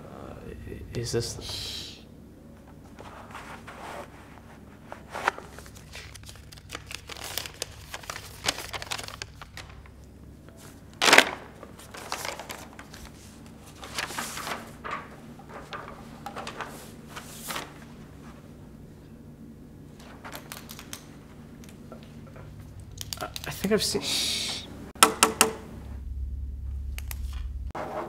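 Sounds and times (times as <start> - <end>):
paper rustling and crinkling: 2.8 - 18.5.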